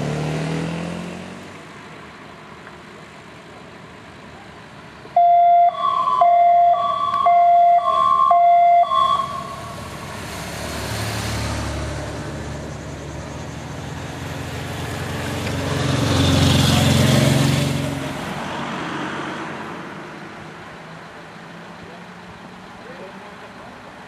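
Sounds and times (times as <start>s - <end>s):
motor vehicles passing: 0.0s - 24.0s
two-tone motorcycle siren: 5.2s - 9.9s.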